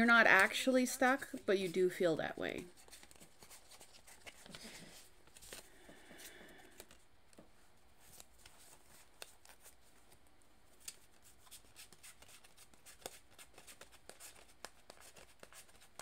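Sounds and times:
cards shuffling: 0:02.6 - 0:07.4, 0:08.0 - 0:16.0.

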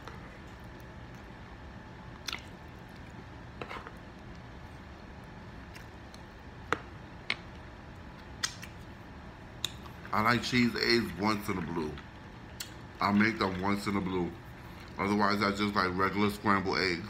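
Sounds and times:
wet chewing: 0:02.1 - 0:03.2
mouth smacks: 0:02.2 - 0:02.6, 0:08.4 - 0:08.8.

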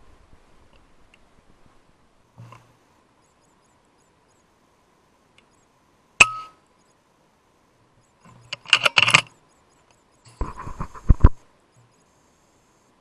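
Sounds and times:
metallic clicks and clinks: 0:08.2 - 0:09.4.

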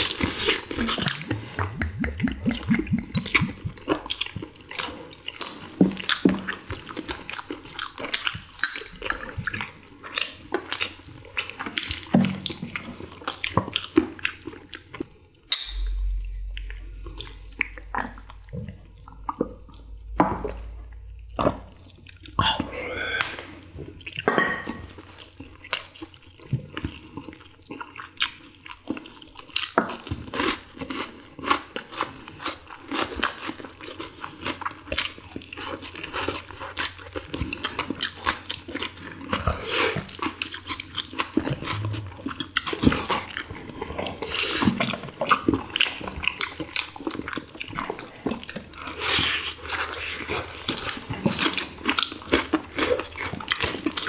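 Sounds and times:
people chewing food: 0:00.0 - 0:54.0.

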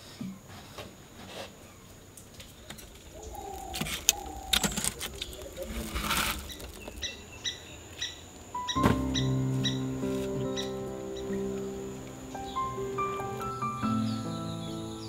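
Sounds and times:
bird calling: 0:03.0 - 0:15.0.

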